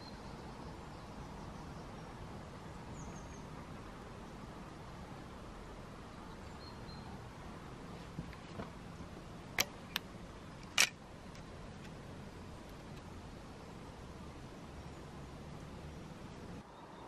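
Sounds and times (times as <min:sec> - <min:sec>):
faint outdoor hiss: 0:00.0 - 0:17.0
sharp clicks: 0:09.6 - 0:12.0.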